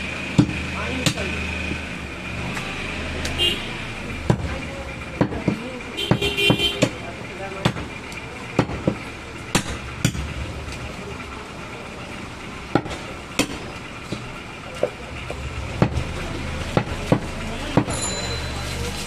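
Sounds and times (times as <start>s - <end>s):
steady background noise: 0.0s - 19.0s
cleaver chopping on wooden block: 0.3s - 1.2s, 8.6s - 10.2s, 12.7s - 14.2s, 16.7s - 17.9s.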